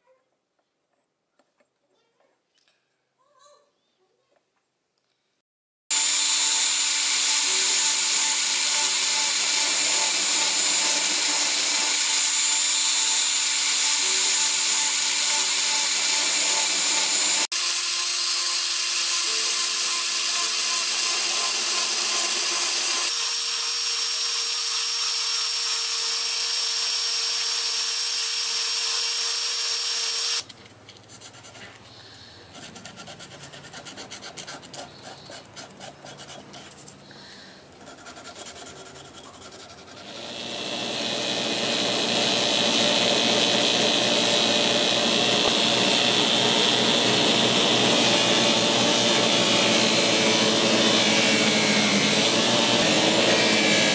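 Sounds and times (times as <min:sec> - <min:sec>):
rotary tool grinding metal: 0:05.9 - 0:30.5, 0:38.2 - 0:53.9
sandpaper scratching on metal: 0:37.8 - 0:40.1.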